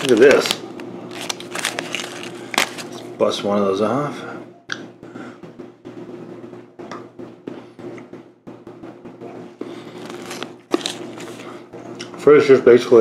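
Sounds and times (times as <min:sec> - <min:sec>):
chocolate breaking crackles: 0:00.0 - 0:02.9
paper wrapper crinkling: 0:00.0 - 0:03.1, 0:09.9 - 0:11.6
steady low hum: 0:00.0 - 0:13.0.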